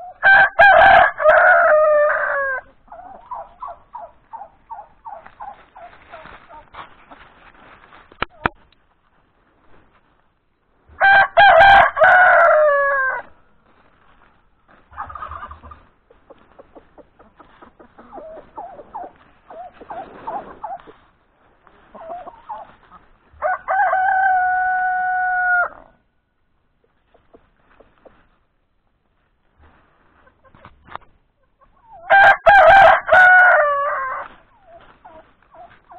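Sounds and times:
rooster crowing: 0:00.1 - 0:02.7, 0:11.0 - 0:13.4, 0:23.4 - 0:26.0, 0:32.1 - 0:34.3
hens clucking: 0:01.4 - 0:08.6, 0:14.0 - 0:24.4, 0:26.7 - 0:28.6, 0:29.6 - 0:35.9.

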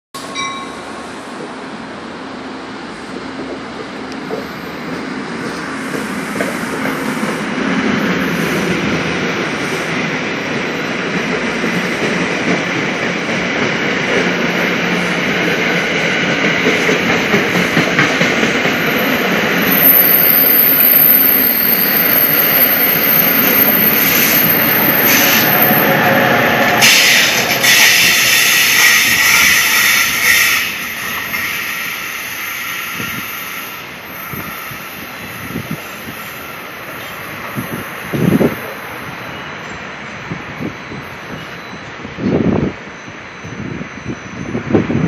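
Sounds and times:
train coaches rolling past: 0:00.2 - 0:45.0
high thin whine: 0:19.5 - 0:32.0.

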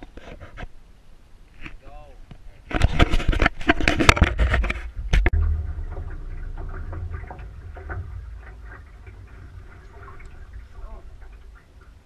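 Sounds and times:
scraping and knocking on camera: 0:02.7 - 0:11.9
steady low rumble: 0:04.8 - 0:12.0.

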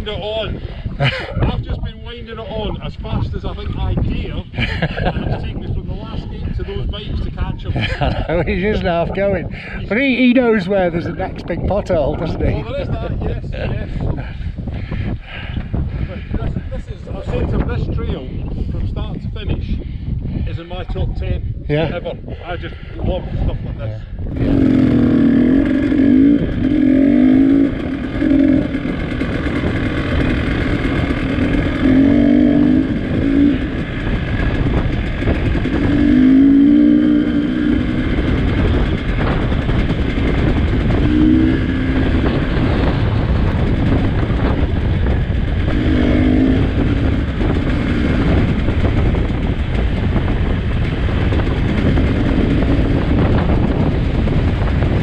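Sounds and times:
motorcycle engine revving: 0:24.2 - 0:55.0.

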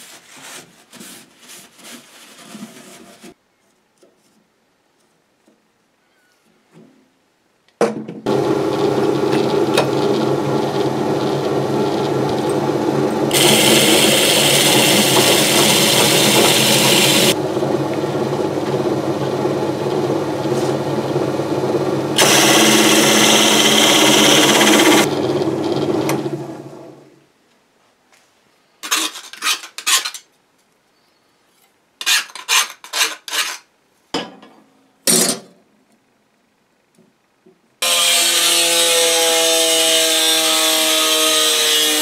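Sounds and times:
power drill hole saw cutting steel: 0:13.3 - 0:17.4, 0:22.2 - 0:25.1, 0:37.8 - 0:42.0.

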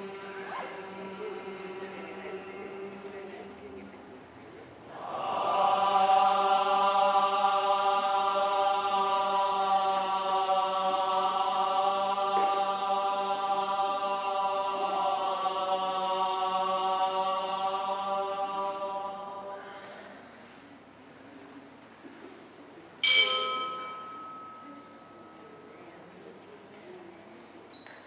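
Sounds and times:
chanting on one long note: 0:04.9 - 0:20.1.

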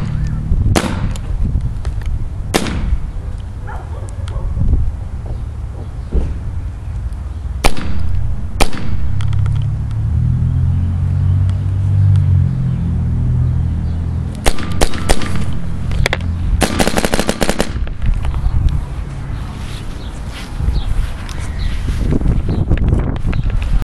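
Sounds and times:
paintball marker shots: 0:00.0 - 0:01.3, 0:02.5 - 0:03.1, 0:07.6 - 0:09.7, 0:14.4 - 0:18.3
low rumble: 0:04.3 - 0:23.2.

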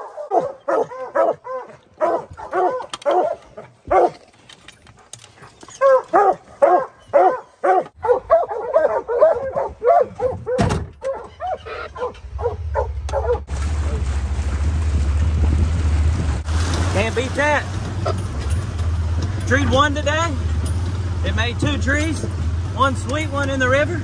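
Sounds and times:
hounds barking: 0:00.0 - 0:04.2, 0:05.6 - 0:13.5
low engine hum: 0:09.0 - 0:24.0
thump: 0:10.5 - 0:11.0.

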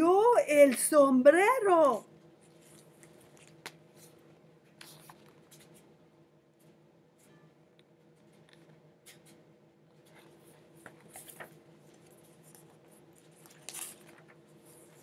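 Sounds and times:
faint steady hum: 0:00.0 - 0:15.0
paper pages rustling: 0:02.4 - 0:05.9, 0:10.0 - 0:15.0.

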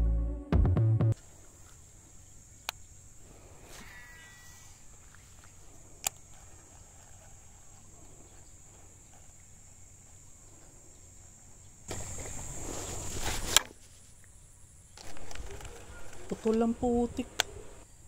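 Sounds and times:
high-pitched insect drone: 0:01.6 - 0:13.1.

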